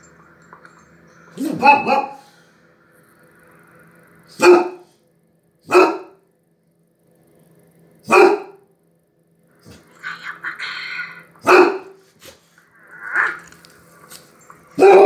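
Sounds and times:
dog barking: 0:01.4 - 0:02.3, 0:04.4 - 0:04.9, 0:05.6 - 0:06.2, 0:08.0 - 0:08.6, 0:11.4 - 0:12.0, 0:14.8 - 0:15.0.

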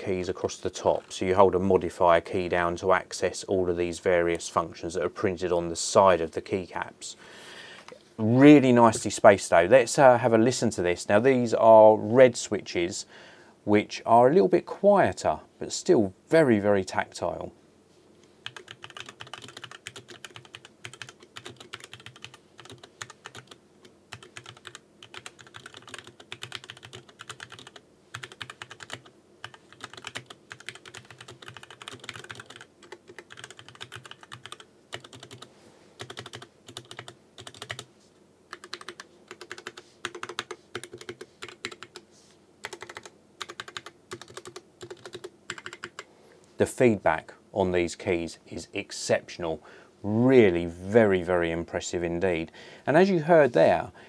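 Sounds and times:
keyboard typing: 0:18.4 - 0:37.9, 0:38.5 - 0:42.0, 0:42.6 - 0:46.1.

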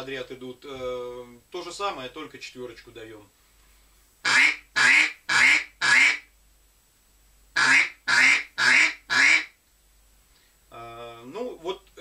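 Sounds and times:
duck call quacks: 0:04.2 - 0:06.3, 0:07.6 - 0:09.6.

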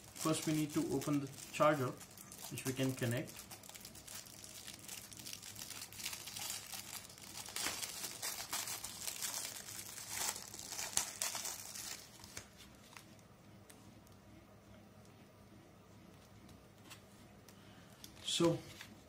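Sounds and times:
plastic wrapper crinkling and tearing: 0:00.0 - 0:13.2.

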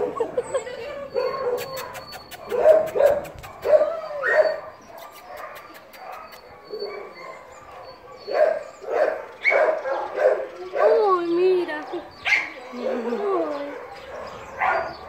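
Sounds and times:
dog whining and yipping: 0:00.0 - 0:10.0.

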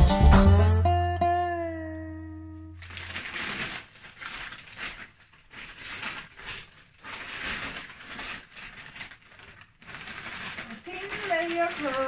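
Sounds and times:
paper sack rustling: 0:02.7 - 0:12.0.

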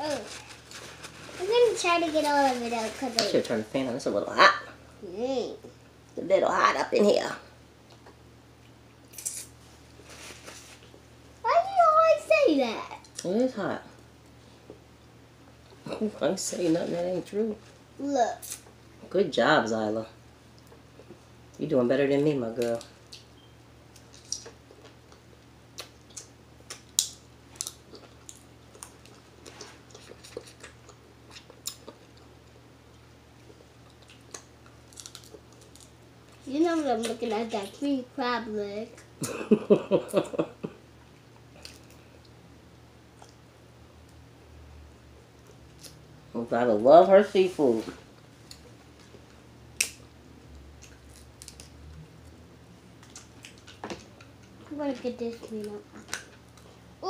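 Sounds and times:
faint clicks and snaps: 0:49.8 - 0:50.0.

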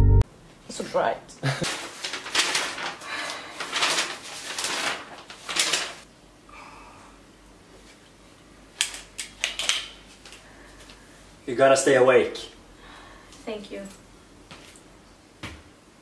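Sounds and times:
paper rustling: 0:01.5 - 0:06.1.

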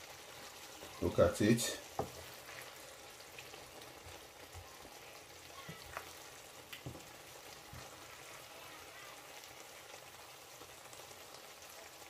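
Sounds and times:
stew simmering with faint sizzle: 0:00.0 - 0:12.0
wooden spoon stirring: 0:00.3 - 0:08.5.

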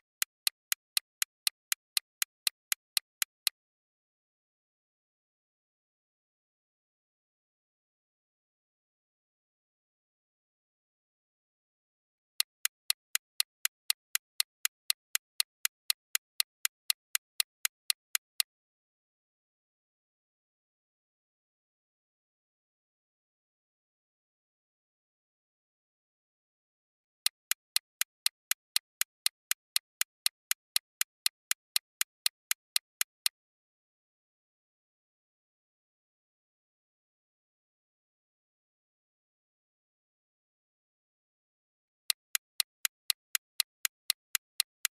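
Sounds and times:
clock-like timer ticking: 0:00.0 - 0:03.6, 0:12.4 - 0:18.4, 0:27.3 - 0:33.4, 0:42.2 - 0:44.9.

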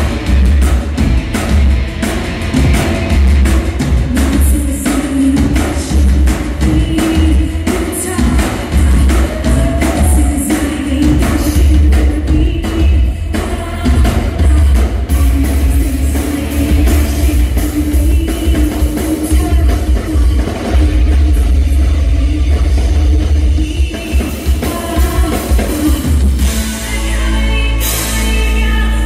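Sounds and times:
booming bass: 0:00.0 - 0:29.0
drums: 0:00.0 - 0:29.0
electric guitar: 0:00.0 - 0:29.0
person singing: 0:04.0 - 0:29.0.

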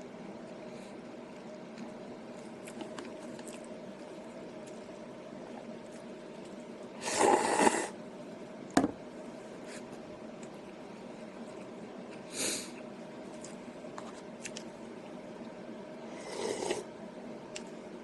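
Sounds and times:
faint steady hum: 0:00.0 - 0:18.0
noodle slurping: 0:07.0 - 0:07.9, 0:16.1 - 0:16.9.

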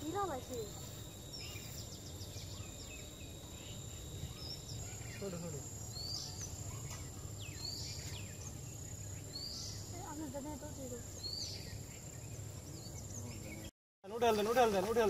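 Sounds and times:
high-pitched insect drone: 0:00.0 - 0:06.0.

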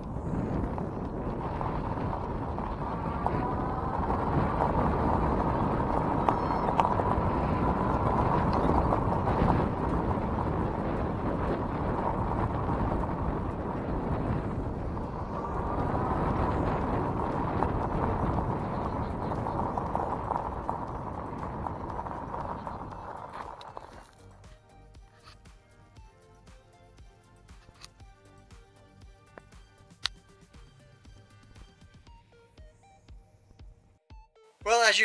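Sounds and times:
tyres crunching on gravel: 0:00.1 - 0:24.2.

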